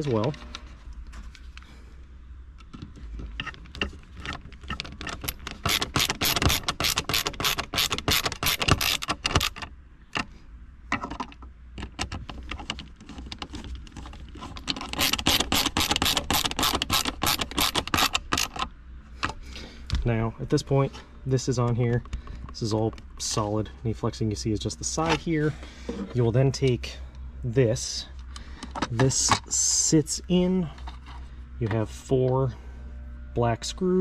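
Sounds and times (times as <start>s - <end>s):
screwdriver rapid clicking: 5.0s - 9.6s, 14.8s - 18.7s.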